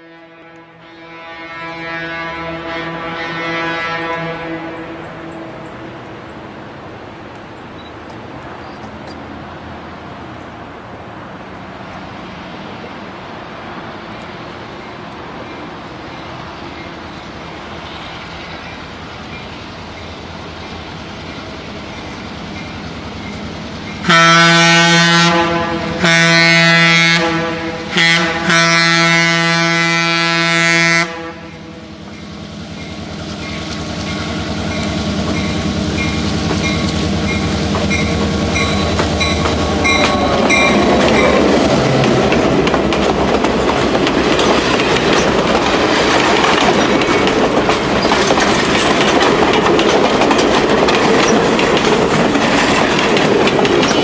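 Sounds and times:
locomotive air horn: 0:00.0 - 0:06.0, 0:24.0 - 0:31.8, 0:38.0 - 0:42.2
diesel locomotive running: 0:00.0 - 0:54.0
train wheels clacking over rail joints: 0:32.0 - 0:54.0.

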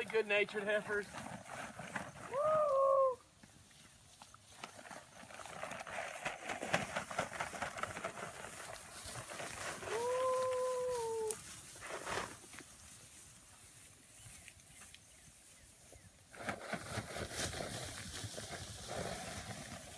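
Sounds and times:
rustling through tall grass: 0:00.0 - 0:19.9
person calling woo to cattle: 0:02.2 - 0:03.3, 0:09.8 - 0:11.4.

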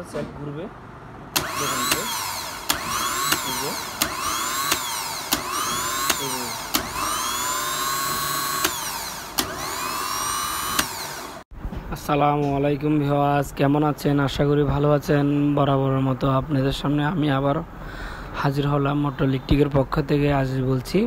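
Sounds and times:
starter motor whining: 0:01.3 - 0:11.5
starter motor click: 0:01.4 - 0:11.4.

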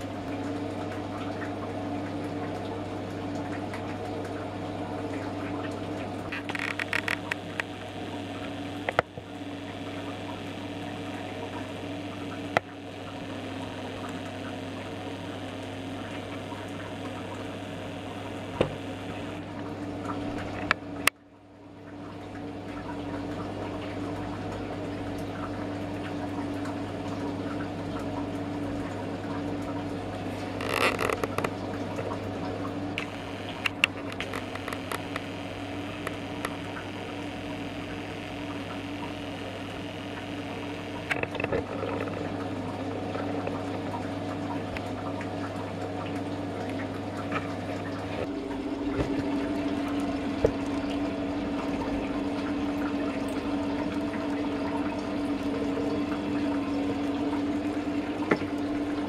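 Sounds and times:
water running: 0:00.0 - 0:21.1, 0:21.7 - 0:59.0
low machine hum: 0:00.0 - 0:59.0
sharp clicks and knocks: 0:06.3 - 0:07.7, 0:33.0 - 0:35.4.

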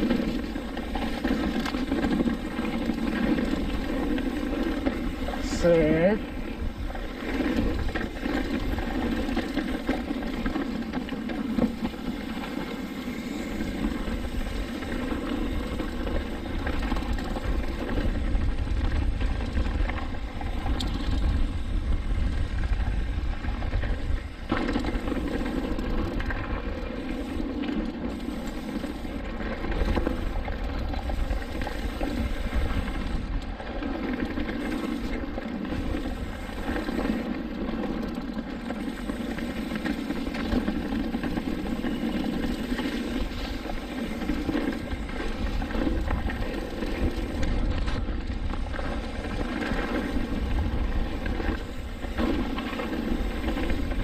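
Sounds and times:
tyres rolling over dirt and gravel: 0:00.0 - 0:54.0
wind on microphone: 0:12.7 - 0:26.7, 0:39.0 - 0:54.0.

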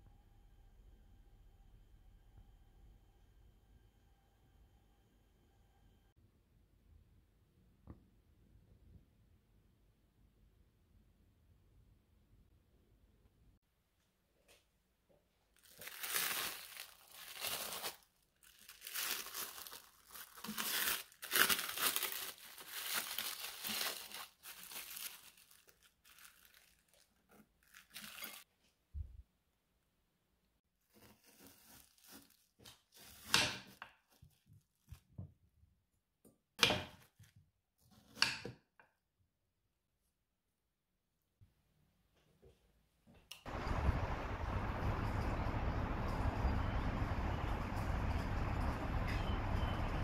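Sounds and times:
cling film crinkling: 0:15.6 - 0:28.5, 0:43.5 - 0:50.0.

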